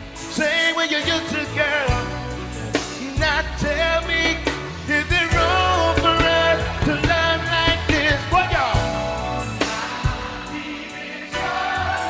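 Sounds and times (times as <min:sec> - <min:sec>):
backing track with bass line: 0:00.0 - 0:12.0
man singing nasally: 0:02.9 - 0:09.5.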